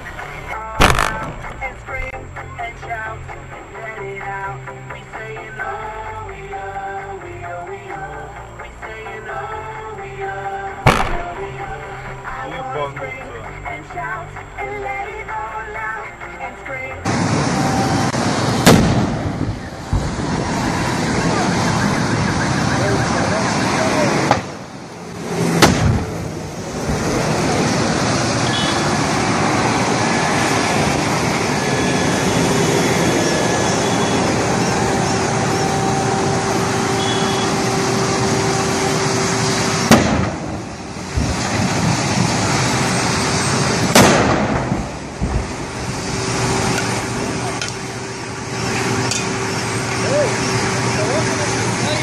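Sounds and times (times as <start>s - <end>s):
road noise: 0.0s - 52.0s
gas cylinders exploding: 0.8s - 1.5s, 10.8s - 11.5s, 17.1s - 22.0s, 23.6s - 27.1s, 39.2s - 47.8s.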